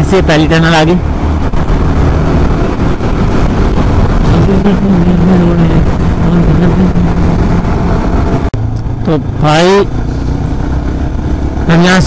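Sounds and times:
motorcycle engine hum: 0:00.0 - 0:12.0
wind and road noise: 0:00.0 - 0:12.0.

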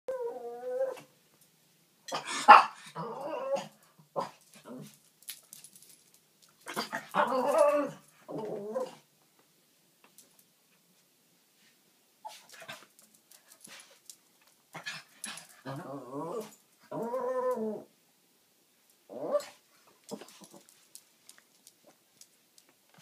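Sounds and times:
dog barking and yapping: 0:02.1 - 0:04.9.

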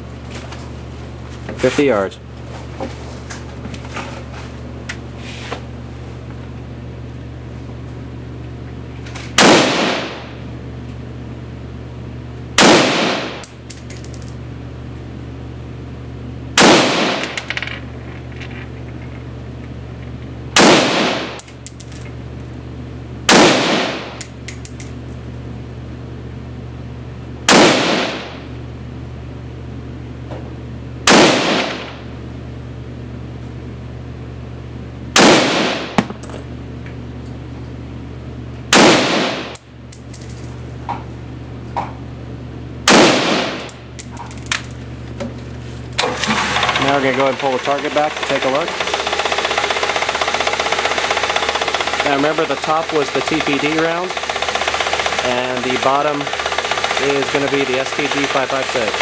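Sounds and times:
rifle shots echoing indoors: 0:09.4 - 0:10.3, 0:12.6 - 0:13.4, 0:16.6 - 0:17.4, 0:20.6 - 0:21.4, 0:23.3 - 0:24.2, 0:27.5 - 0:28.4, 0:31.1 - 0:32.0, 0:35.2 - 0:36.1, 0:38.7 - 0:39.6, 0:42.9 - 0:43.7.

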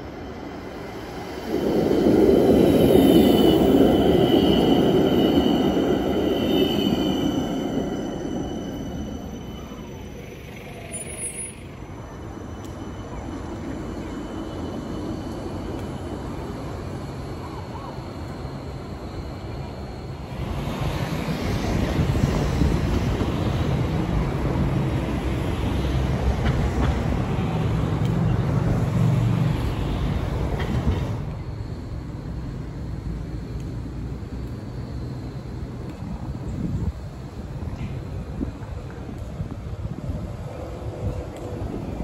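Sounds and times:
faint tram squeals: 0:00.0 - 0:33.4
street background: 0:00.0 - 0:42.0
tram wheels rumbling on rails: 0:00.0 - 0:42.0.

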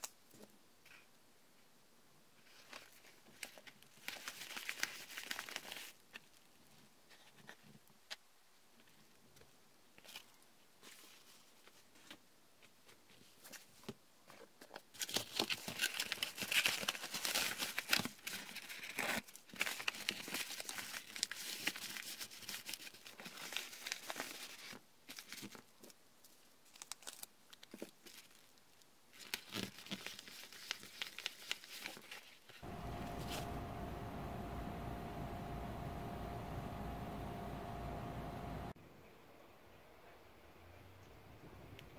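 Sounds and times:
paper rustling: 0:02.4 - 0:06.4, 0:14.3 - 0:25.9, 0:29.2 - 0:36.2
paper mailer crinkling: 0:29.2 - 0:38.7.

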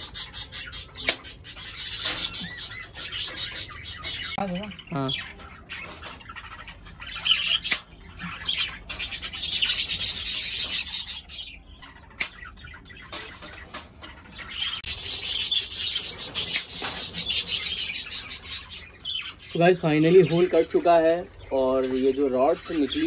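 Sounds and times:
cockatiels calling: 0:00.0 - 0:23.0
wire cutting rasping strokes: 0:14.8 - 0:18.6.

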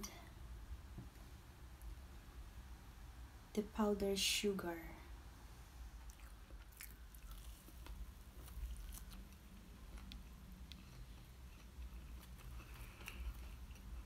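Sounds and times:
person chewing soft food: 0:06.0 - 0:14.0.

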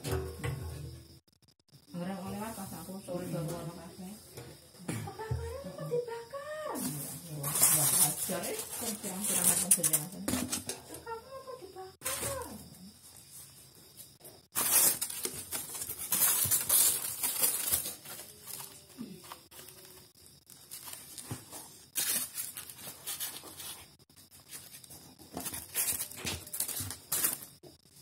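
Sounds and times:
styrofoam scraping and crackling: 0:06.8 - 0:10.6, 0:14.5 - 0:27.6.

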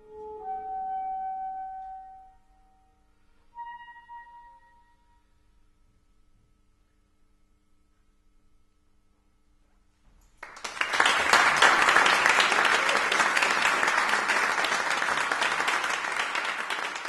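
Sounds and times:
audience applause: 0:10.4 - 0:17.0.

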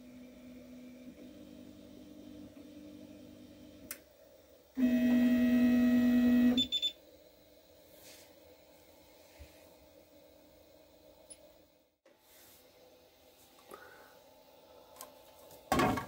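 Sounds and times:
printer buzzer double beep: 0:04.8 - 0:07.0.

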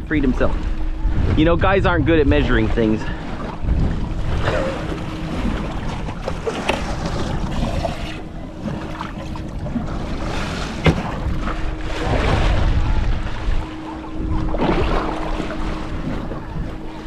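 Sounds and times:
choppy water washing around boat: 0:00.0 - 0:17.0
wind: 0:00.0 - 0:17.0.

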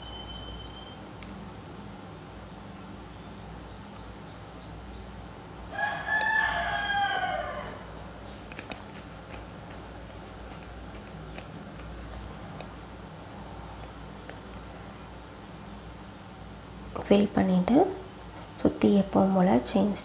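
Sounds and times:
rooster crowing: 0:05.7 - 0:08.1.

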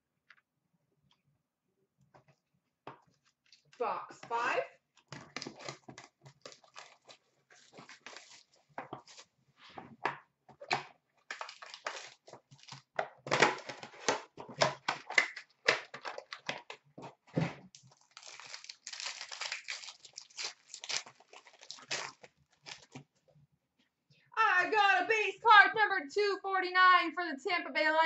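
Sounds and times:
plastic wrapping crinkling and tearing: 0:05.1 - 0:09.3, 0:11.3 - 0:16.9, 0:17.6 - 0:23.1.

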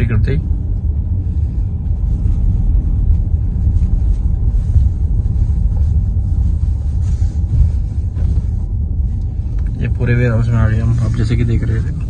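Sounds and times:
car engine and tyre rumble: 0:00.0 - 0:12.0.

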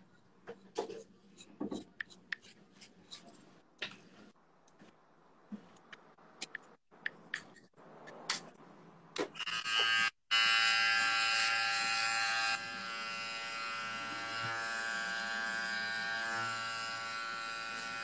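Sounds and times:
electric hair trimmer buzzing: 0:09.4 - 0:18.0.

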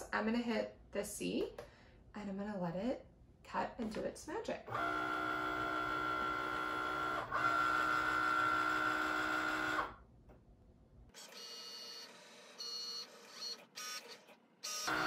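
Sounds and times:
cutting machine motor whine: 0:04.7 - 0:10.0, 0:11.2 - 0:15.0.

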